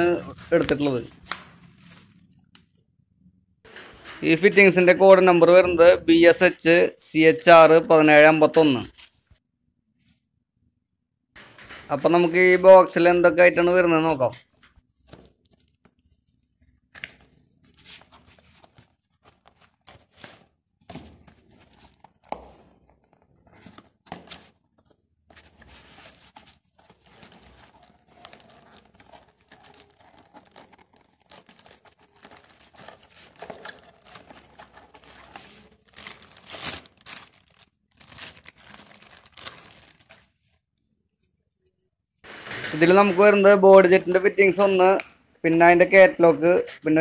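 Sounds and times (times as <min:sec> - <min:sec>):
plastic bag crinkling: 0:25.6 - 0:40.6.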